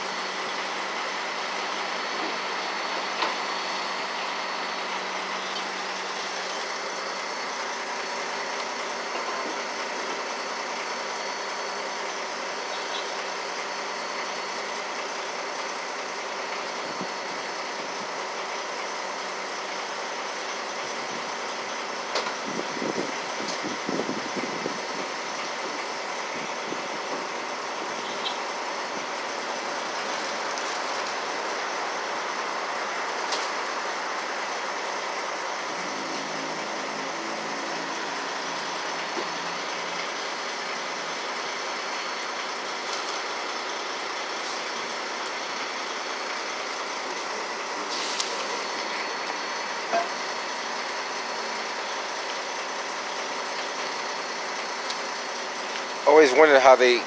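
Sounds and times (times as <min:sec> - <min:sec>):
heavy truck engine running: 0:00.0 - 0:57.0.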